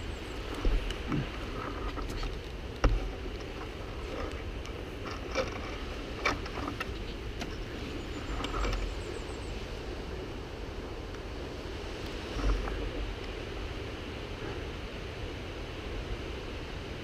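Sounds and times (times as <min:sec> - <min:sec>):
dirt bike engine rumble: 0:00.0 - 0:11.5
knocks and scrapes on stones: 0:00.5 - 0:09.1.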